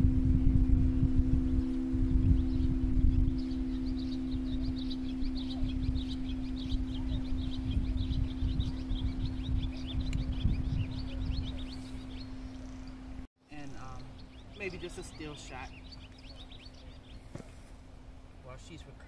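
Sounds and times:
singing bowl ringing: 0:00.0 - 0:13.1
low rumble: 0:00.0 - 0:14.6
birds chirping: 0:00.0 - 0:19.0.

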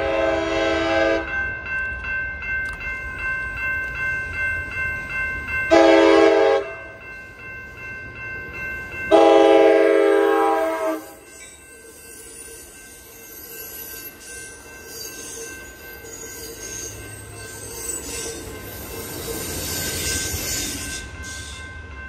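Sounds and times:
train horn blasts: 0:00.0 - 0:01.3, 0:05.7 - 0:06.7, 0:09.1 - 0:11.2
railroad crossing bells ringing: 0:00.0 - 0:22.0.

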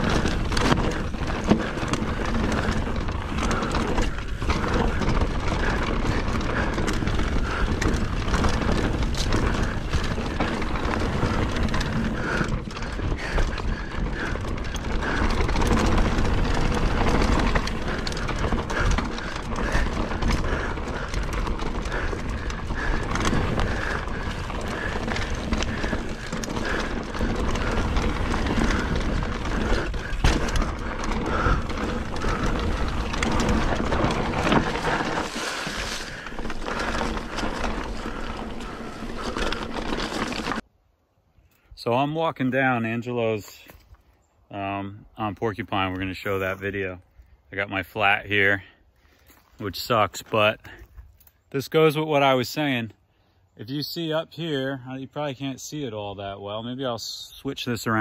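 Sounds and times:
bike rattling and knocking: 0:00.0 - 0:40.6
drivetrain clicking: 0:00.0 - 0:40.6
bike tyres rolling on dirt: 0:00.0 - 0:40.7, 0:41.8 - 0:58.0.

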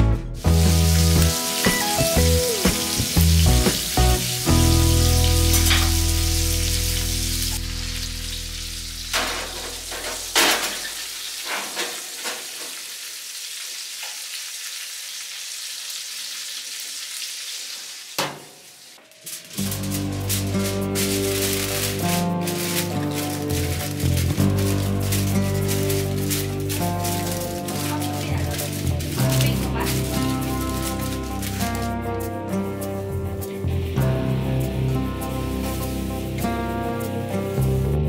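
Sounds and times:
background music: 0:00.0 - 0:09.3, 0:19.3 - 0:38.0
aluminium foil crinkling: 0:00.4 - 0:08.1, 0:19.0 - 0:37.6.

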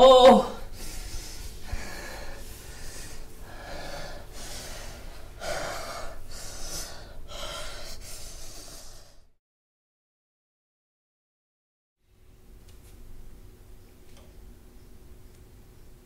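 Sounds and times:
person gasping breaths: 0:00.6 - 0:09.4.

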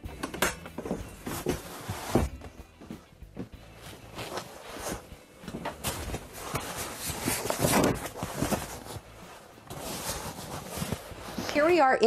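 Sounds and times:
leather cushions thumping: 0:00.8 - 0:09.1
leather and upholstery rustling: 0:00.8 - 0:11.9.

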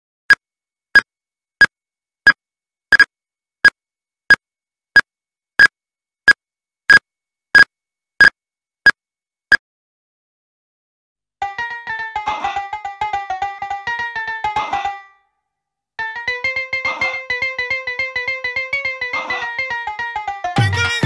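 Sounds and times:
electronic timer ticks with beeps: 0:02.3 - 0:03.8, 0:05.0 - 0:05.7, 0:06.3 - 0:07.0, 0:07.6 - 0:08.4.

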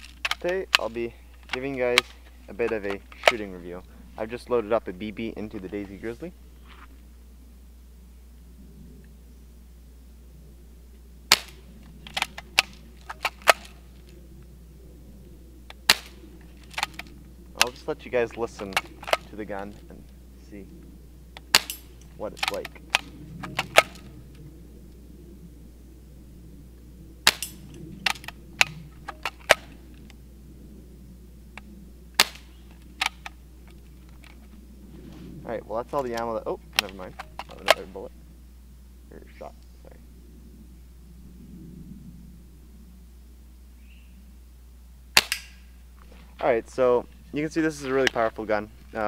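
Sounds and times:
clicks and cracks: 0:00.0 - 0:03.5, 0:11.3 - 0:14.2, 0:15.7 - 0:19.9, 0:21.4 - 0:24.4, 0:27.3 - 0:30.2, 0:31.6 - 0:34.5, 0:36.0 - 0:37.8, 0:45.2 - 0:46.1
bb gun firing snap: 0:11.3 - 0:13.8, 0:15.8 - 0:17.7, 0:21.4 - 0:24.1, 0:27.2 - 0:29.8, 0:32.2 - 0:33.4, 0:45.2 - 0:45.7
small sharp clicks: 0:45.2 - 0:45.7.

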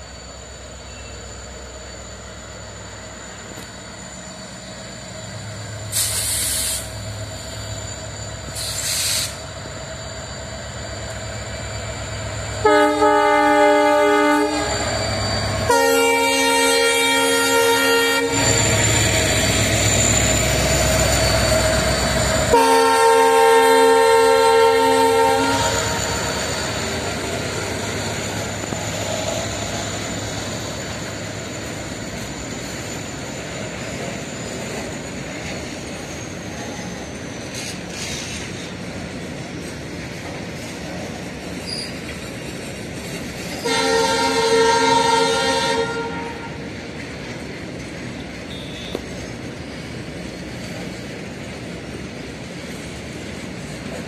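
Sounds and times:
diesel locomotive accelerating: 0:00.0 - 0:54.0
locomotive horn: 0:12.6 - 0:14.8, 0:15.6 - 0:18.6, 0:22.5 - 0:26.2, 0:43.6 - 0:46.7, 0:48.5 - 0:49.1
train wheels clattering on rail: 0:24.6 - 0:44.2, 0:46.5 - 0:54.0.

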